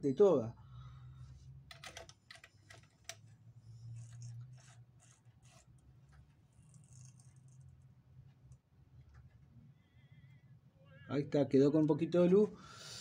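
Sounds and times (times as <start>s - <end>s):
sewing machine mechanism clicks: 4.0s - 7.7s.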